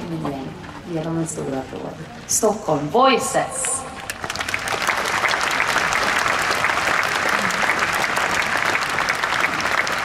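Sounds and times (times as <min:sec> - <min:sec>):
audience applauding: 0:04.1 - 0:10.0.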